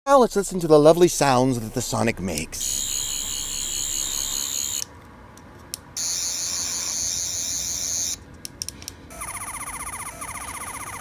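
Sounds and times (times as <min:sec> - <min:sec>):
toy high warbling buzz: 0:02.6 - 0:04.8, 0:06.0 - 0:08.2, 0:09.1 - 0:11.0
pulsing electronic sound: 0:09.1 - 0:11.0.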